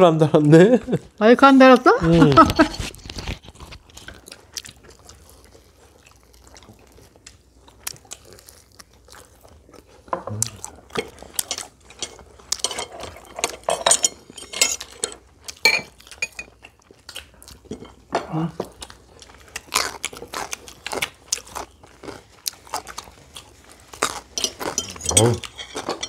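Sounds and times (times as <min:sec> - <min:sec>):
chewing crispy fried chicken: 0:02.6 - 0:26.0
chopsticks clinking on plates: 0:10.9 - 0:16.8, 0:24.0 - 0:26.0.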